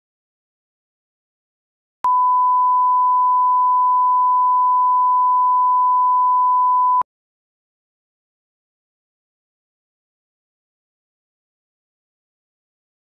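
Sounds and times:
steady test tone beep: 2.0 - 7.0.

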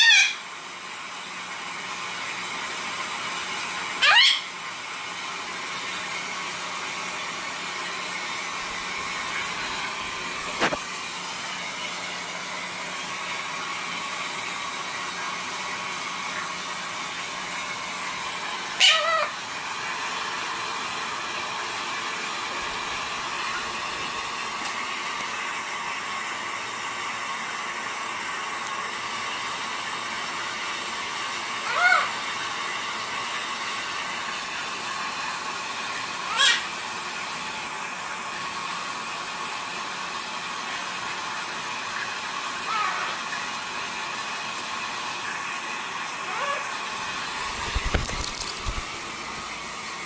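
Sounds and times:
parrot squawk: 0.0 - 0.4, 4.0 - 4.5, 18.8 - 19.4, 31.6 - 32.2, 36.3 - 36.7, 42.7 - 43.2, 46.3 - 46.7.

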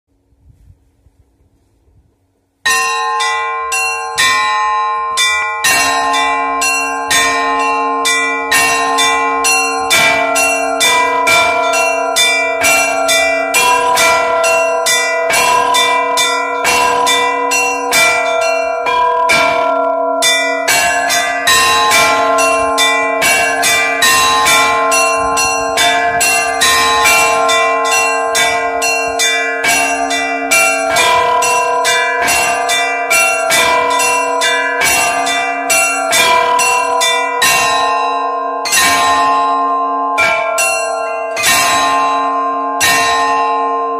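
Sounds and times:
deep church bell: 2.6 - 43.9
small church bells ringing rapidly: 2.6 - 43.9.

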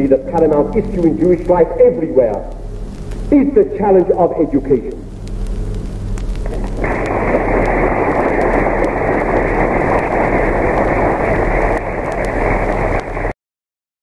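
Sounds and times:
low steady hum: 0.0 - 13.4
audience applauding: 6.6 - 13.3.

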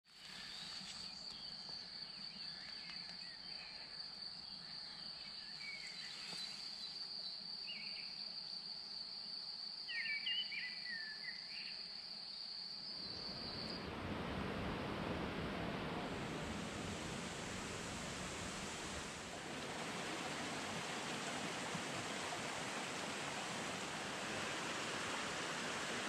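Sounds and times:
crickets trilling: 0.1 - 26.0
bird chirps: 9.9 - 11.8
stream rushing: 13.0 - 26.0.

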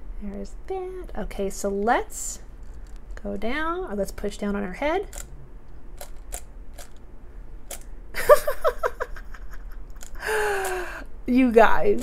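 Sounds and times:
plastic toy clicking and clacking: 7.7 - 7.9.

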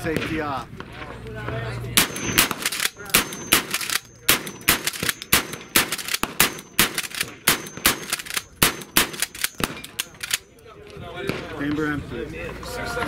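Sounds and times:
distant gunfire from other shooters: 2.0 - 10.2
rapid shotgun fire: 2.0 - 10.4.

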